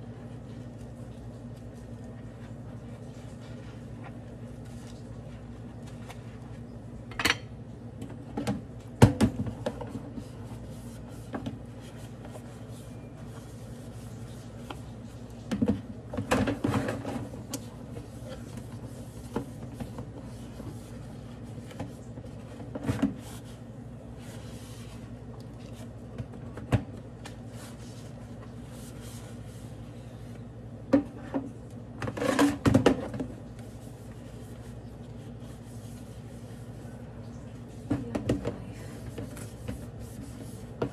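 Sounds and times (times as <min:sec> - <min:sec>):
dishes knocking and clattering: 0:07.1 - 0:07.5
sponge scrubbing plastic containers: 0:32.1 - 0:40.9.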